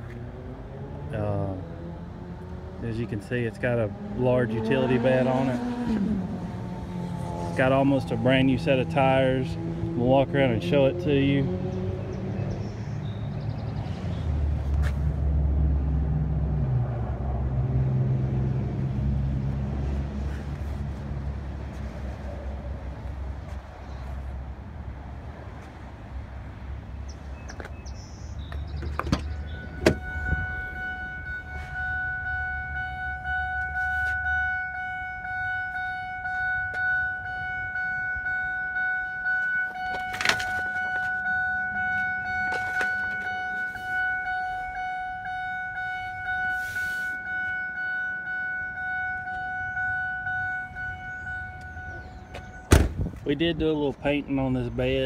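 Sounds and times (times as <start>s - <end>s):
electronic warning chime: 29.4s - 52.7s.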